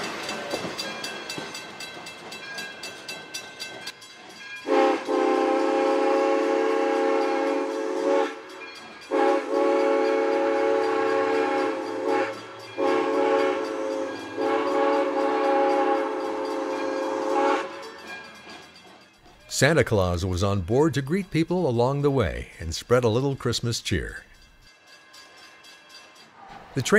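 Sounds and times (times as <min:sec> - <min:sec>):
steam locomotive chime whistle: 0:00.0 - 0:26.9.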